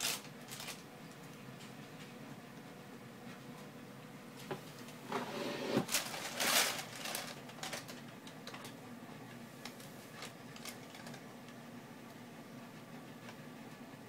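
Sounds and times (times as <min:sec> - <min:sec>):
plastic bag crinkling and rustling: 0:00.0 - 0:01.3, 0:05.8 - 0:08.8, 0:09.6 - 0:11.2.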